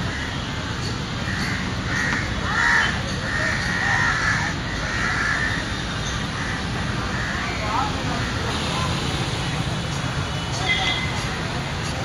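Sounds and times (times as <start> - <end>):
crows cawing: 0.0 - 0.5, 1.2 - 5.8, 6.4 - 7.6.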